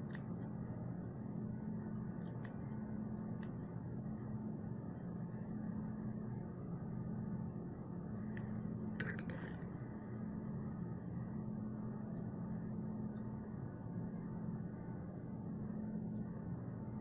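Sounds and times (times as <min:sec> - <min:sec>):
steady low hum: 0:00.0 - 0:17.0
scissors snipping: 0:02.0 - 0:02.6, 0:03.2 - 0:03.7.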